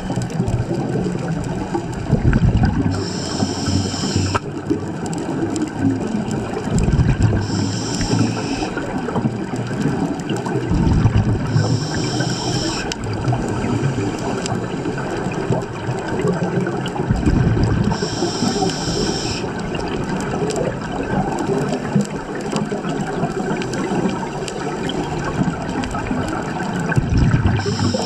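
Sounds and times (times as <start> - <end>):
exhaled bubbles underwater: 0.0 - 28.0
underwater noise: 0.0 - 28.0
regulator hissing inhale: 2.9 - 4.4, 7.4 - 8.9, 11.4 - 14.9, 17.9 - 19.6, 27.6 - 28.0.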